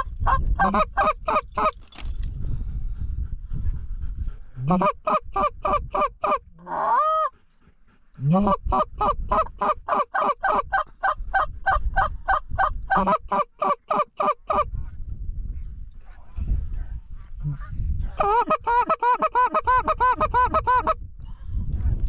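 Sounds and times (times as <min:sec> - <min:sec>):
goose call clucks: 0:00.0 - 0:01.7, 0:04.6 - 0:07.3, 0:08.2 - 0:14.7, 0:18.2 - 0:21.0.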